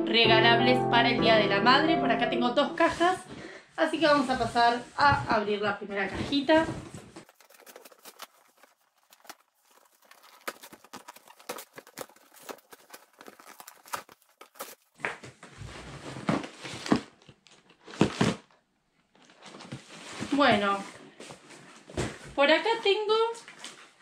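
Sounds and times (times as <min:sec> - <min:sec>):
rustling: 0:06.0 - 0:18.4
cardboard and tape tearing: 0:07.0 - 0:18.6.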